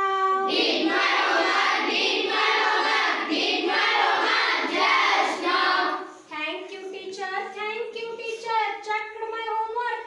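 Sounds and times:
children singing in chorus: 0.5s - 6.2s.

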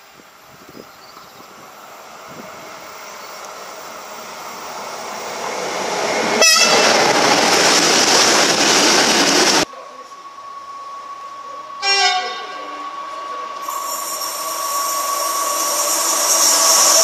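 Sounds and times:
freight train passing: 0.0s - 17.0s
wheels rushing on rail: 0.0s - 17.0s
locomotive horn toot: 6.4s - 7.0s, 11.8s - 12.6s.

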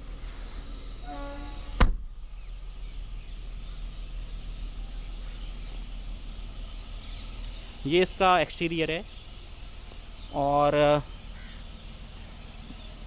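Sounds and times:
low background hum: 0.0s - 13.0s
car door shutting thump: 1.8s - 2.2s.

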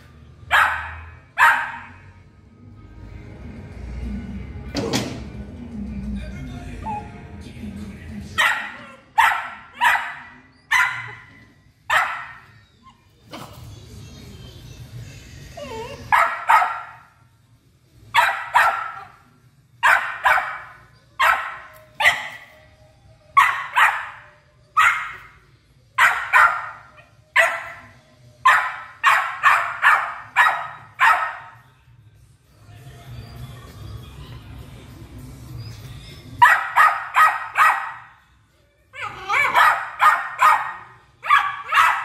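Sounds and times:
puppy barking: 0.4s - 2.1s, 8.3s - 12.6s, 15.6s - 17.1s, 18.1s - 22.6s, 23.4s - 25.4s, 26.0s - 31.6s, 36.4s - 38.2s, 39.0s - 42.0s.

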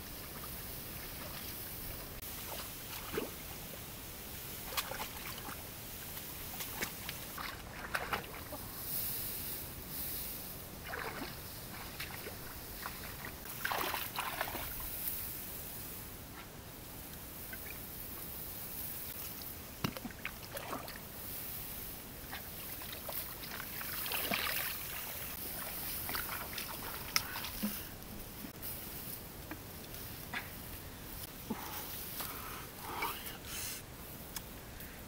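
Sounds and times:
muddy water splashing: 0.0s - 8.8s, 10.7s - 15.0s, 19.2s - 21.2s, 22.0s - 28.5s
steady outdoor hiss: 0.0s - 35.0s.

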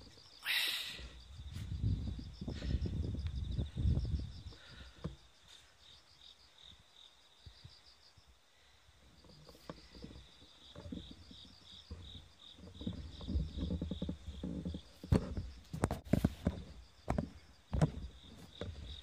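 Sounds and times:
crickets chirping: 0.0s - 19.0s
low knocks and rustles: 9.2s - 19.0s.

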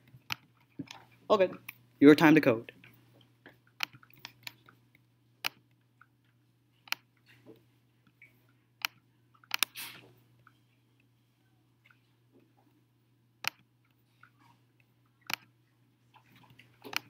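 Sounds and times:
low steady hum: 0.0s - 17.0s
mouse and keyboard clicks: 8.8s - 9.9s.

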